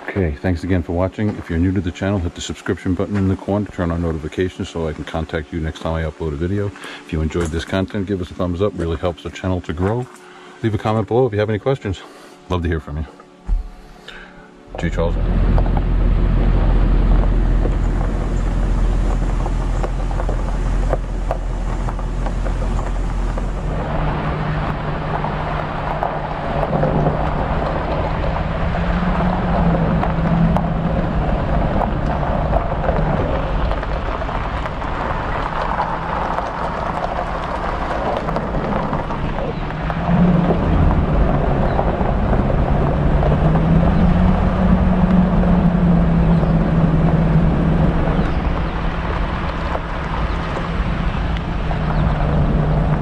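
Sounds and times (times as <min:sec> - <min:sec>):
truck engine running: 0:00.0 - 0:53.0
wind rumbling on microphone: 0:14.7 - 0:53.0
tyre noise on gravel: 0:14.8 - 0:53.0.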